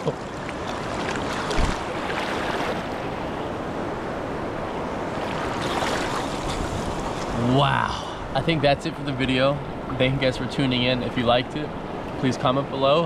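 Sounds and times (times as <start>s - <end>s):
river water rushing: 0.0s - 8.4s.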